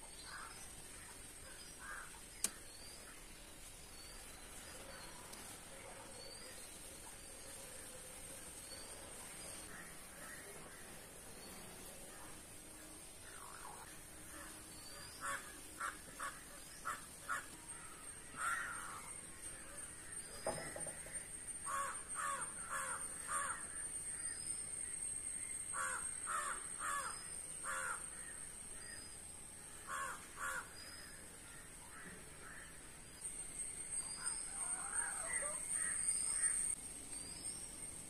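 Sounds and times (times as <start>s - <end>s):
faint high whine: 0.0s - 38.0s
crows cawing: 1.8s - 2.6s, 15.2s - 19.0s, 21.7s - 23.8s, 25.7s - 28.4s, 29.8s - 30.8s.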